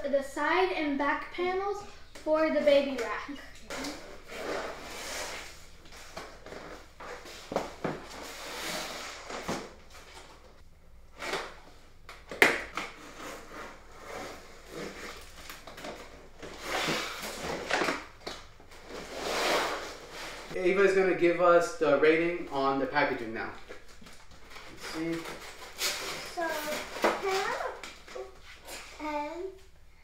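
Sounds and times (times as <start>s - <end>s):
cardboard scraping and rustling: 24.0s - 28.9s.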